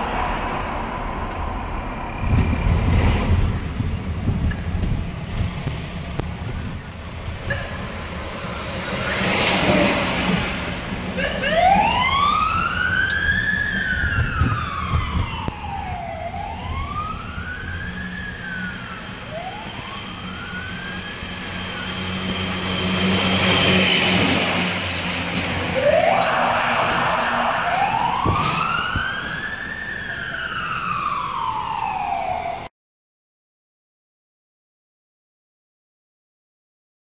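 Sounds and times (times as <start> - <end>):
heavy truck engine: 0.0 - 32.0
traffic noise: 0.0 - 32.7
fire truck siren wailing: 7.0 - 32.7.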